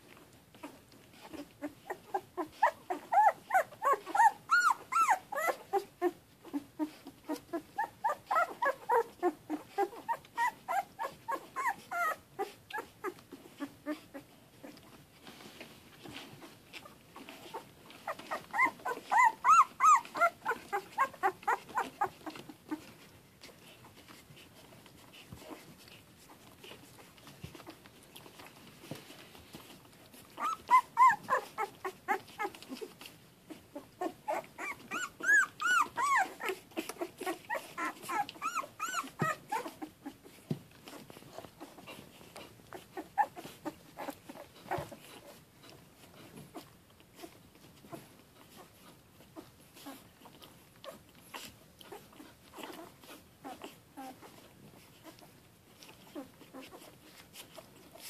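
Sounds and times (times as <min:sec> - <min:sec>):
puppies squeaking and whimpering: 0:00.5 - 0:15.0, 0:16.0 - 0:28.8, 0:30.1 - 0:58.0.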